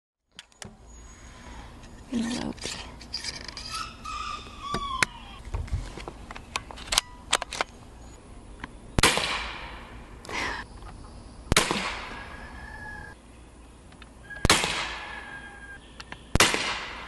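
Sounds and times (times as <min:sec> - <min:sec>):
air rifle sharp report: 0:11.5 - 0:12.4.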